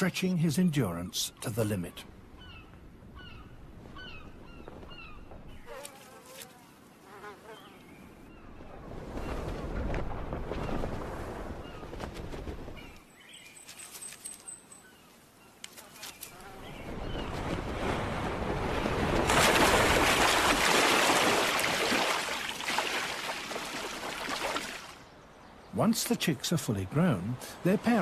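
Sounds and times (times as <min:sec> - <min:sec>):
water splashing: 0:16.9 - 0:25.0.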